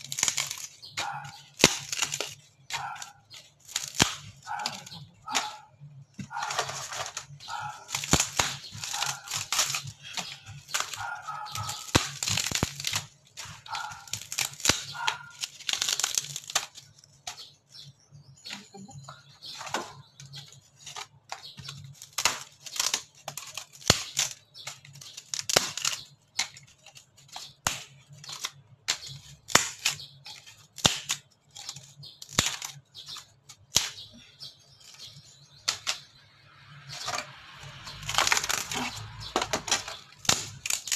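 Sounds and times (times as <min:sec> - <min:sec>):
wood cracking and snapping: 0:00.0 - 0:17.9, 0:19.5 - 0:40.9
wood splintering and tearing: 0:00.0 - 0:40.9.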